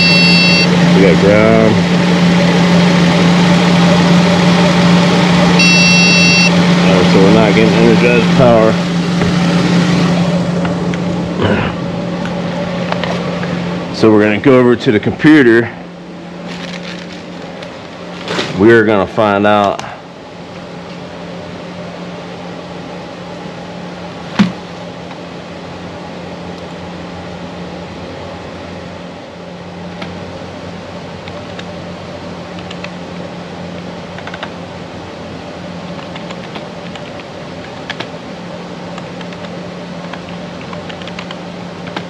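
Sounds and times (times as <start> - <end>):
fan hum: 0.0 - 42.0
typing on computer keyboard: 40.2 - 42.0.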